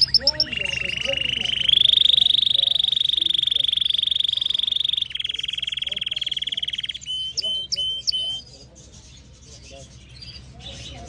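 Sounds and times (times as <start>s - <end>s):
canary trilling: 0.0s - 11.0s.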